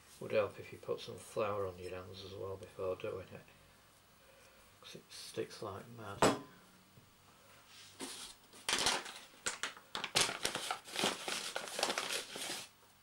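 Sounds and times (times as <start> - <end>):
paper bag rustling: 8.0 - 12.7.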